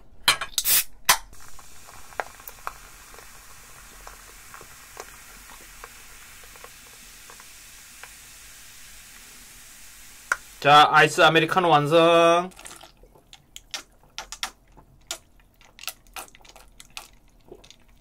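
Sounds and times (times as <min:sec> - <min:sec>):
can cracked open: 0:00.5 - 0:01.4
fizzing hiss with bubble pops: 0:00.6 - 0:10.9, 0:12.5 - 0:18.0
cola pouring into mug: 0:01.4 - 0:10.8, 0:11.8 - 0:18.0.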